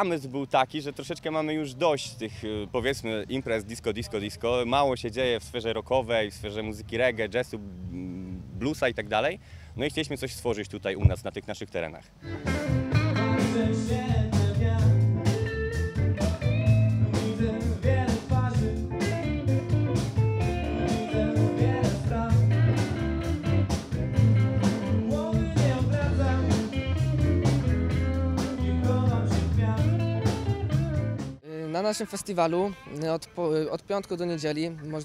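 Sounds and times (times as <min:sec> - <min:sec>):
live rock band: 0:12.2 - 0:31.4
man singing into a microphone: 0:13.2 - 0:15.1, 0:16.2 - 0:19.8, 0:20.8 - 0:22.8, 0:24.6 - 0:27.3, 0:27.9 - 0:31.1.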